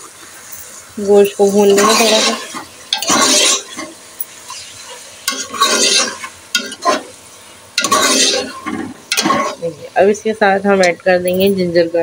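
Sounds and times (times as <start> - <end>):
meat sizzling in oil: 0.0 - 10.8
ladle scraping pot: 1.2 - 7.2, 7.8 - 9.7.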